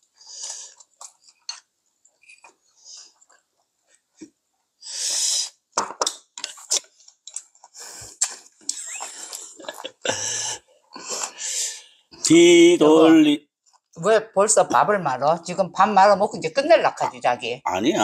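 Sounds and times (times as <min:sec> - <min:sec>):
people chewing and slurping: 0:00.0 - 0:01.7, 0:05.0 - 0:11.8
short hissy breaths: 0:04.8 - 0:05.6, 0:10.2 - 0:11.9.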